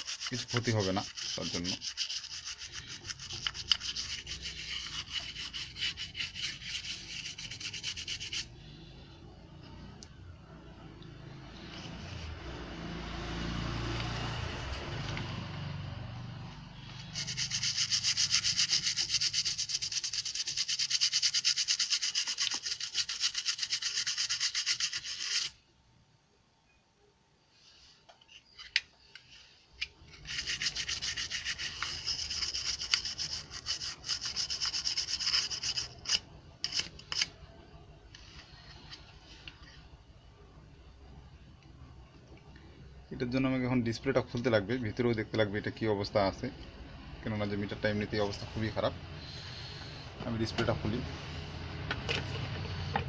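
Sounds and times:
brush scrubbing circuit board: 0.0 - 8.5, 16.8 - 25.6, 30.1 - 37.3.

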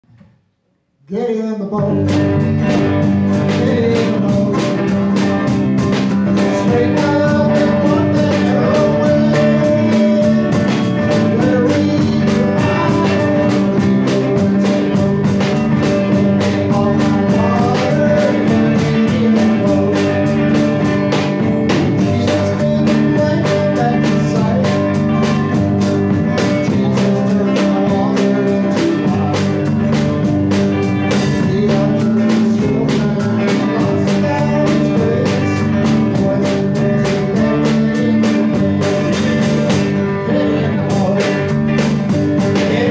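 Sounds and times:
acoustic guitar: 1.1 - 42.9
electric guitar: 1.7 - 42.9
electric bass: 1.8 - 42.9
drum kit steady beat: 1.9 - 42.9.

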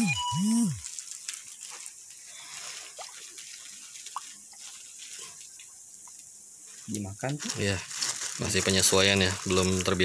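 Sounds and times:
water dripping and splashing: 1.1 - 6.3.

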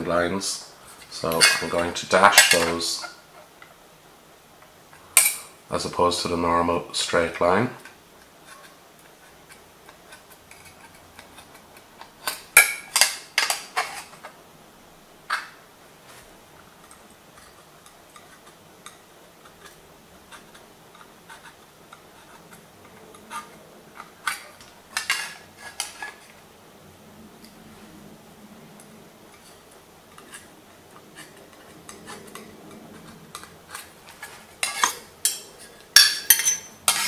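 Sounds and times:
metal tools clinking: 34.1 - 37.0.

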